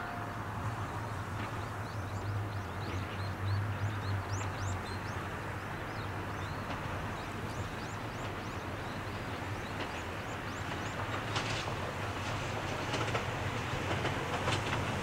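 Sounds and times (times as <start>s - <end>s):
birds chirping: 0.8s - 11.4s.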